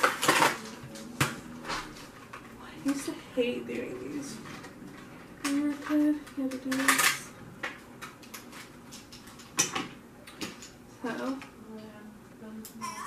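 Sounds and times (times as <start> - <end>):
plastic toy packaging clattering: 0.0 - 1.3, 4.4 - 7.3.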